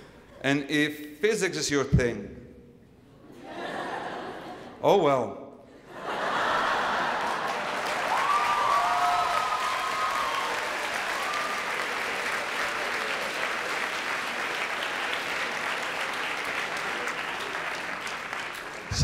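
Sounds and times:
audience applauding: 6.2 - 19.0
high cheer: 6.7 - 19.0.

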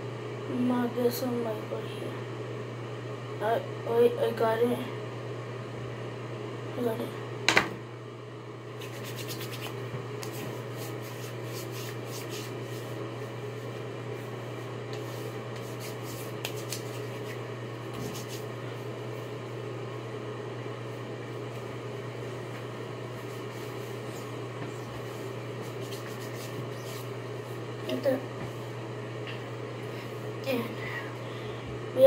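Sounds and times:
steady low hum: 0.0 - 32.0
hands rubbing hair: 8.8 - 13.0, 14.9 - 18.5, 23.2 - 27.6.

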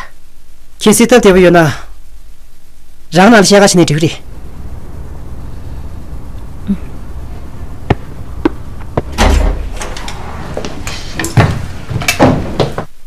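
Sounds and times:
heavy thud: 7.8 - 10.0.

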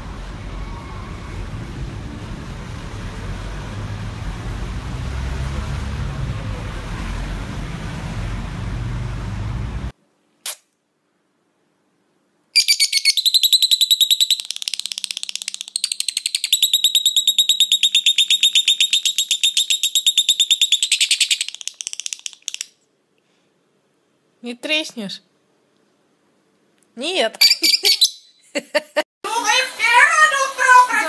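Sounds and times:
bird chirping rapidly: 12.6 - 22.6, 27.4 - 28.4.

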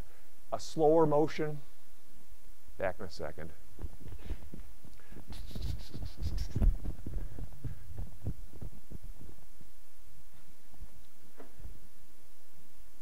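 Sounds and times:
clothing rustle: 3.8 - 9.5
footsteps: 3.8 - 9.6.

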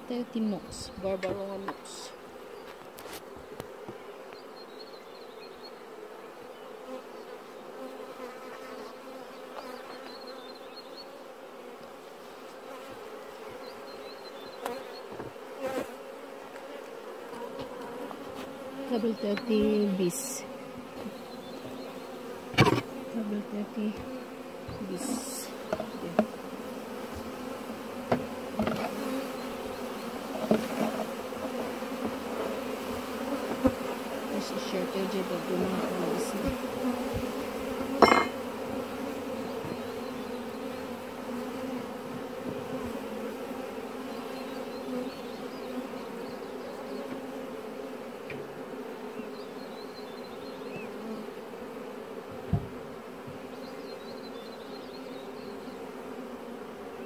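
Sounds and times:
honeybees buzzing: 0.0 - 57.0
knocks on wooden hive frames: 22.5 - 23.0, 25.7 - 26.4, 28.0 - 29.0, 36.4 - 38.5, 52.3 - 53.5.

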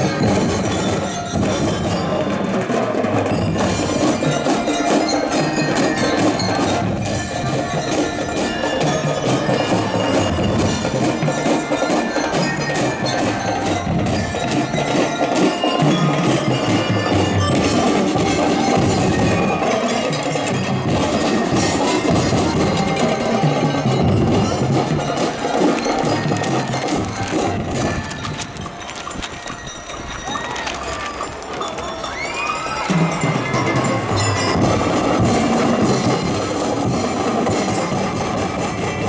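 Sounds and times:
bell lyres playing melody: 0.0 - 39.0
rapid drum strikes: 32.9 - 39.0.

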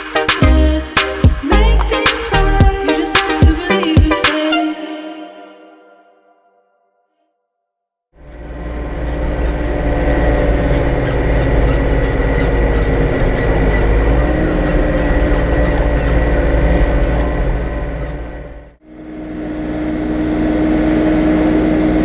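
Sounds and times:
tractor engine rumbling: 8.2 - 18.8.

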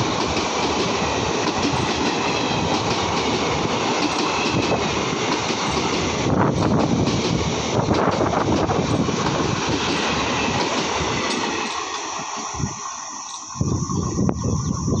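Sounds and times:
train wheels rattling on track: 0.0 - 15.0
hiss: 8.8 - 15.0.

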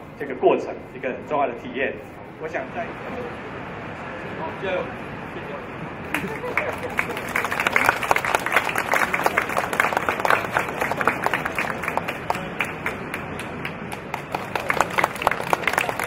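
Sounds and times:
audience applauding: 6.1 - 16.0.

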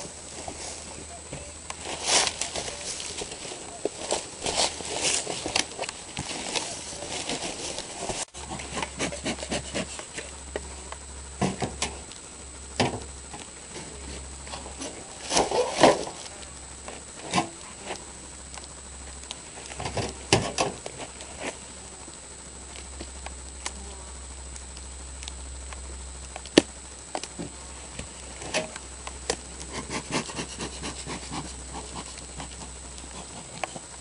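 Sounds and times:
footsteps on soil: 0.0 - 8.5
rustling and scraping cardboard: 0.0 - 10.3, 13.8 - 18.0, 29.6 - 34.0
honeybees buzzing: 0.0 - 34.0.

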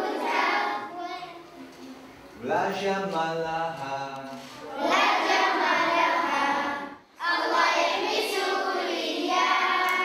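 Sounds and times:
girls singing together: 0.0 - 0.9, 4.6 - 10.0.

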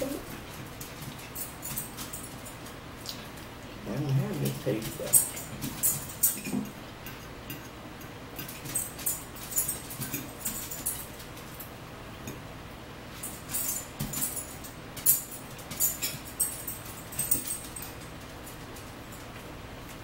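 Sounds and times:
forks tapping and scraping on plates: 4.1 - 11.2, 13.3 - 18.1.

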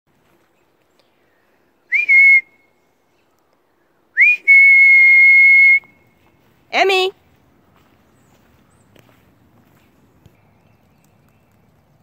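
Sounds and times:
person whistling: 1.9 - 2.6, 4.2 - 6.0.

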